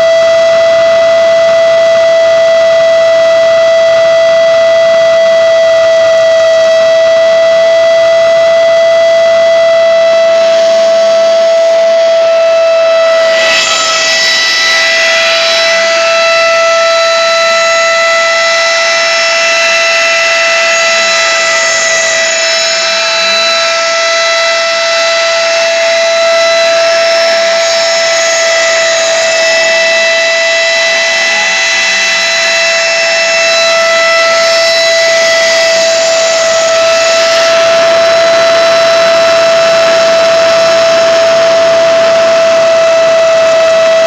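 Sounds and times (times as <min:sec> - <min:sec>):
rotary tool high whine: 0:09.6 - 0:44.0
bit grinding metal: 0:13.2 - 0:38.2.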